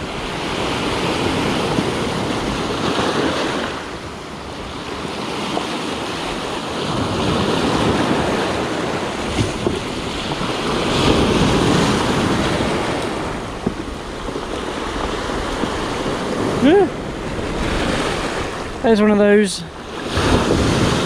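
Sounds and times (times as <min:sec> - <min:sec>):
surf breaking on cobble beach: 0:00.0 - 0:21.0
wind buffeting microphone: 0:00.0 - 0:21.0.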